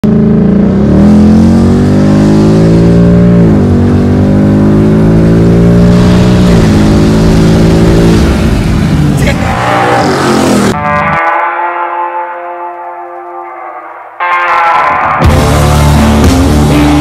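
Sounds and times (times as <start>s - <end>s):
car engine accelerating hard: 0.0s - 10.8s, 15.2s - 17.0s.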